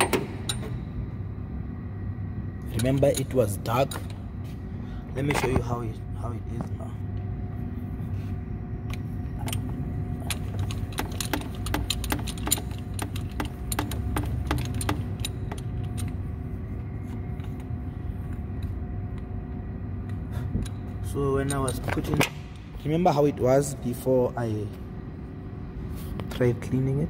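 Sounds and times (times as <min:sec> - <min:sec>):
steady low rumble: 0:00.0 - 0:27.0
metallic clicks of tools: 0:08.9 - 0:16.2.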